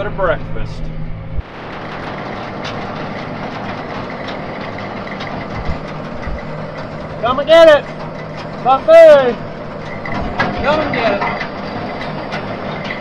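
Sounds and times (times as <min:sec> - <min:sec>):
tractor engine running: 0:00.0 - 0:13.0
feed wagon mechanism rattling: 0:01.4 - 0:13.0.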